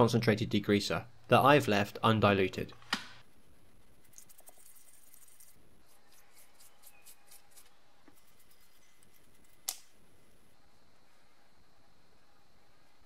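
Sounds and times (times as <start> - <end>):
brush scrubbing rubber: 3.3 - 9.6.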